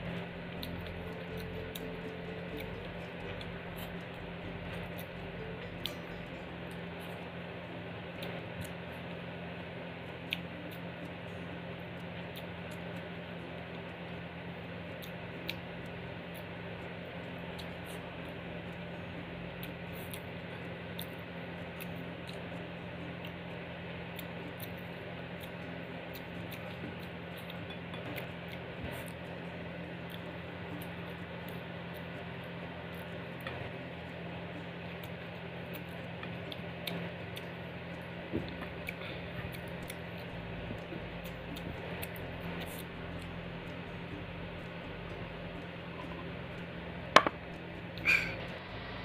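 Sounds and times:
steady low hum: 0:00.0 - 0:49.0
chewing and mouth clicks: 0:24.1 - 0:48.5
taps on a plate: 0:47.2 - 0:47.4.

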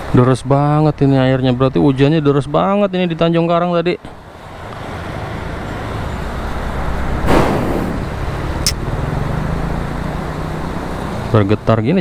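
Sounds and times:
vehicle passing close: 0:04.3 - 0:11.4.

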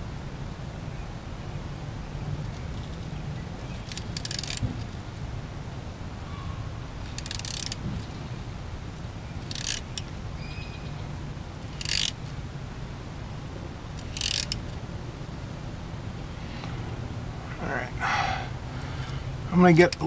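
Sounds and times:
steady low rumble: 0:00.0 - 0:20.0
ratchet clicking: 0:02.5 - 0:05.0, 0:07.0 - 0:08.2, 0:09.4 - 0:10.2, 0:11.6 - 0:12.3, 0:13.9 - 0:14.8, 0:19.8 - 0:20.0.

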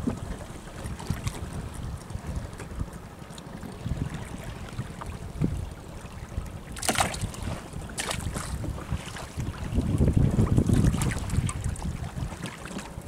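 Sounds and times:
water sloshing around boat: 0:00.0 - 0:13.0
wind buffeting microphone: 0:00.0 - 0:13.0.

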